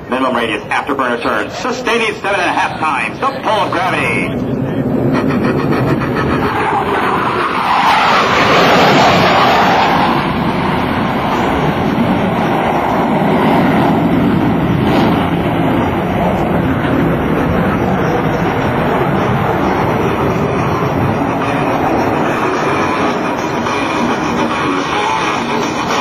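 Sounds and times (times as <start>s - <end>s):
jet engines in afterburner: 0.0s - 26.0s.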